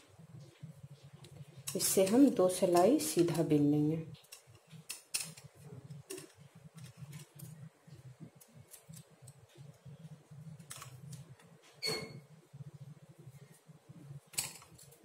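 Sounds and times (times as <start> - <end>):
knitting needles clicking: 1.2 - 3.4, 4.1 - 11.6.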